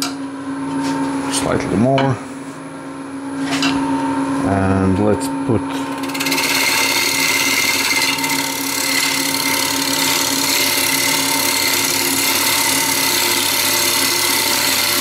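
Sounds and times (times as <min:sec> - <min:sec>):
lathe machine hum: 0:02.5 - 0:15.0
gouge cutting wood shavings: 0:06.1 - 0:15.0.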